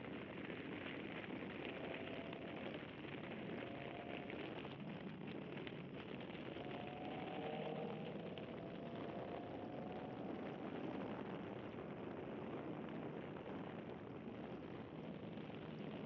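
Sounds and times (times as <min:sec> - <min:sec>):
wind and road noise: 0:00.0 - 0:16.0
faint car engine: 0:01.4 - 0:12.8.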